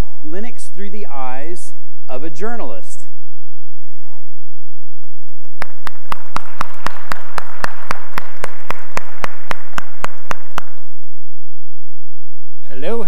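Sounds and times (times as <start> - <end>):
person clapping steadily: 4.7 - 11.2
audience applauding: 5.0 - 11.0.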